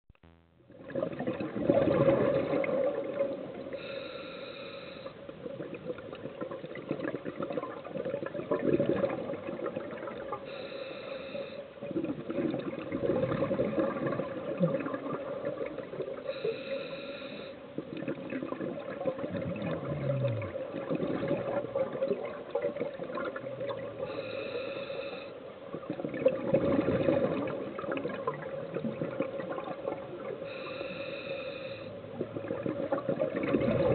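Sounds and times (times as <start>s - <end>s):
steady hum: 0.1s - 1.2s
gurgling exhaust bubbles: 0.7s - 3.7s, 5.4s - 10.4s, 11.8s - 16.2s, 17.8s - 24.2s, 25.8s - 30.5s, 32.0s - 33.9s
regulator inhale hiss: 3.7s - 5.2s, 10.4s - 11.8s, 16.3s - 17.7s, 24.0s - 25.5s, 30.4s - 32.0s.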